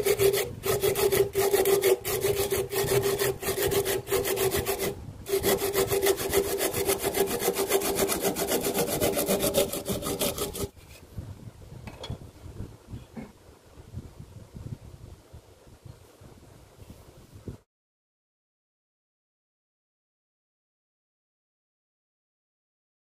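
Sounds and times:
hand saw cutting wood: 0.0 - 10.8.

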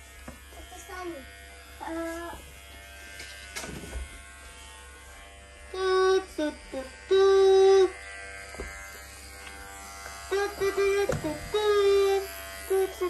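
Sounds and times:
electric hair clipper buzzing: 0.0 - 13.0.

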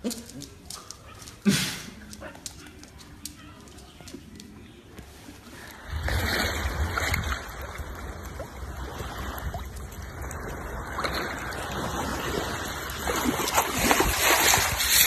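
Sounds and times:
sea water lapping and splashing: 5.6 - 15.0.

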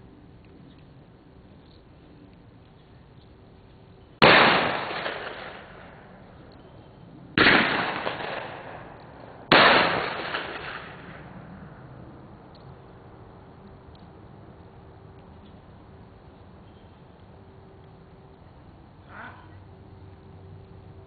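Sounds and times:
shotgun shots: 4.2 - 6.0, 7.4 - 11.4.

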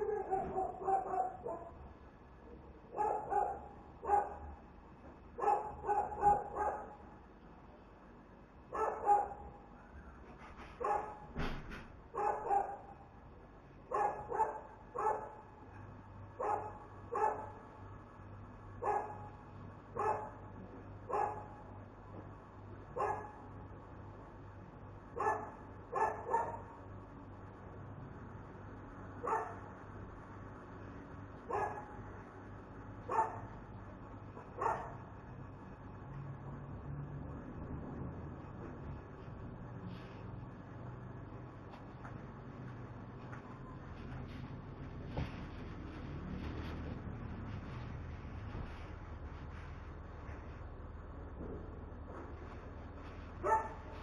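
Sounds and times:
dog barking: 0.0 - 1.8, 2.9 - 4.6, 5.4 - 7.0, 8.7 - 9.6, 10.8 - 11.3, 12.1 - 13.0, 13.9 - 15.5, 16.4 - 17.6, 18.8 - 19.4, 20.0 - 20.5, 21.1 - 21.6, 23.0 - 23.4, 25.2 - 26.8, 29.2 - 29.6, 31.5 - 32.0, 33.1 - 33.6, 34.5 - 35.0, 53.4 - 54.0.

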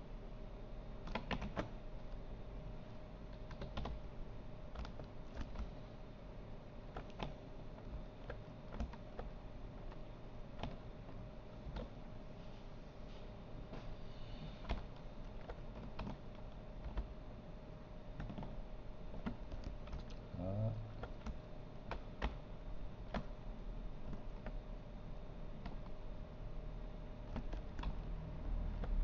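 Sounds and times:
faint hum: 0.0 - 29.0
computer keyboard typing: 1.0 - 2.2, 3.3 - 5.8, 6.8 - 12.0, 14.6 - 17.2, 18.1 - 20.2, 20.9 - 23.4, 24.0 - 24.6, 25.5 - 26.0, 27.2 - 29.0.

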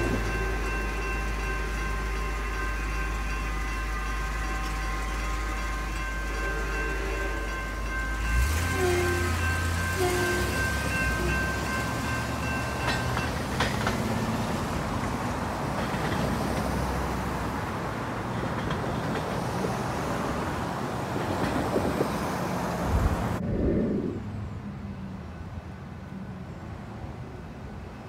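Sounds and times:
crossing warning bell ringing: 0.0 - 21.7
vehicles passing: 0.0 - 28.0.

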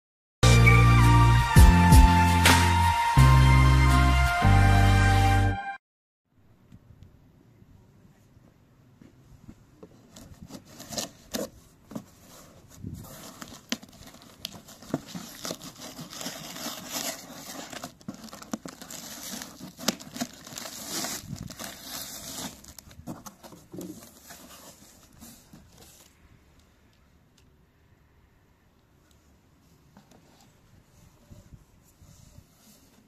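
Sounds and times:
scrapes and rustles: 9.0 - 26.2, 29.6 - 33.0
tape tearing: 13.2 - 25.8.

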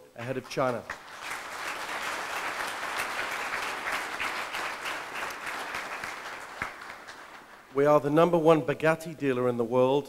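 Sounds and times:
audience applauding: 0.2 - 7.8.

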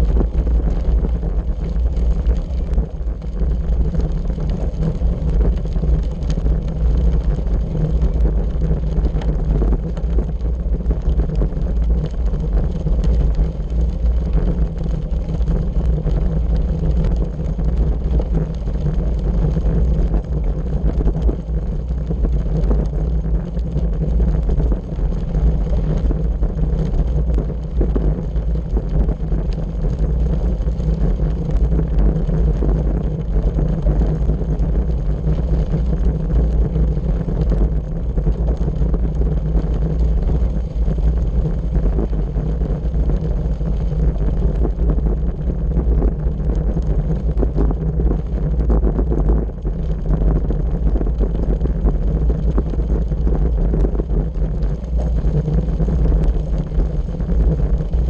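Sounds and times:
steady low rumble: 0.0 - 58.0
wind buffeting microphone: 0.0 - 58.0.

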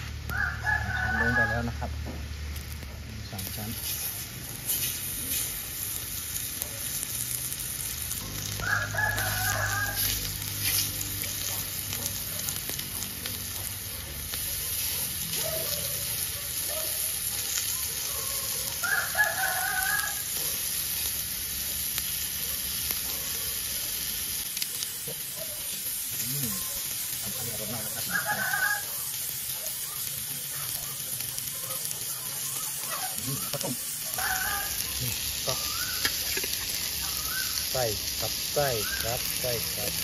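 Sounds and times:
meat sizzling on a grill: 0.0 - 40.0
rooster crowing: 0.2 - 2.1, 8.2 - 10.4, 18.1 - 20.5, 27.5 - 30.0, 31.6 - 36.0.

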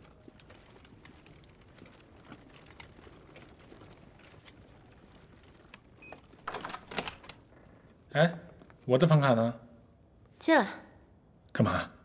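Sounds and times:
door handle rattle: 6.3 - 7.4.

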